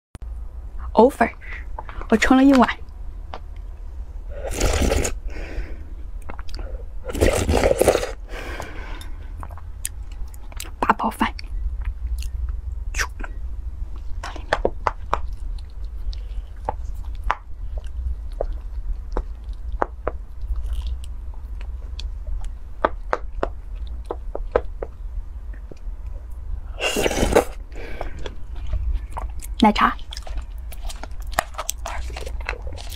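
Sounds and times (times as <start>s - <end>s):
loud slurp: 4.4s - 5.2s, 7.1s - 8.2s, 26.8s - 27.6s.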